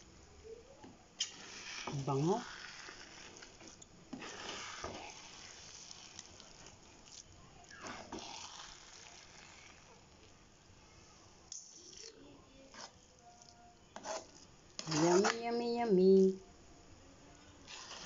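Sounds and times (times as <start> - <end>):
rice mixture sizzling in pan: 1.1 - 13.0, 17.6 - 18.0
scraping strokes in pan: 1.2 - 10.0, 14.0 - 15.4.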